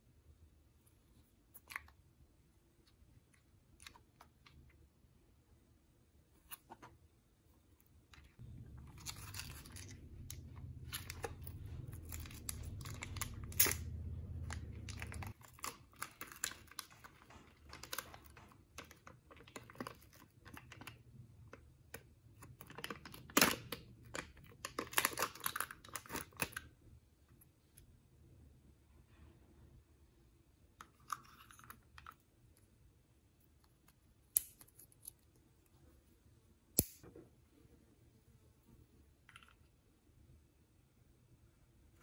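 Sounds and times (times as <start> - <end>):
low hum: 7.6 - 15.7.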